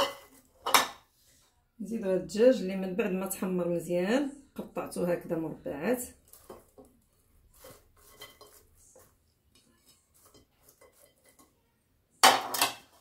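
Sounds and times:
china dishes clattering: 0:00.0 - 0:01.0, 0:08.0 - 0:08.7
soft taps and rustles of food: 0:06.2 - 0:11.6.

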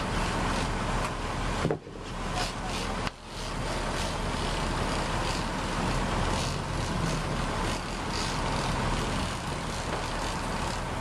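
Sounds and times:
boat engine drone: 0:00.0 - 0:11.0.

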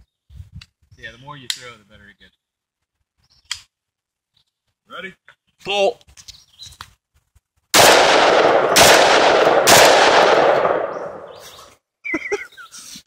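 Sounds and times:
shotgun shots echoing: 0:07.8 - 0:11.5.

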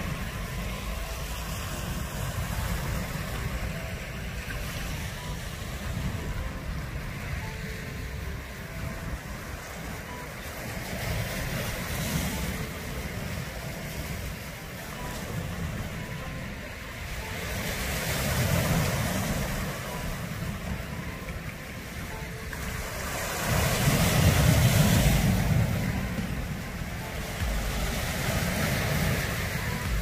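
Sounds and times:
waves breaking on pebbly shore: 0:17.2 - 0:30.0.

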